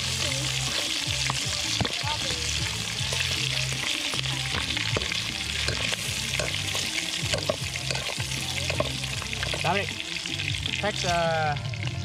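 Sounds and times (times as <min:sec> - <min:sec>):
bacon sizzling in hot fat: 0:00.0 - 0:12.0
metal tongs clicking and scraping: 0:07.3 - 0:09.6.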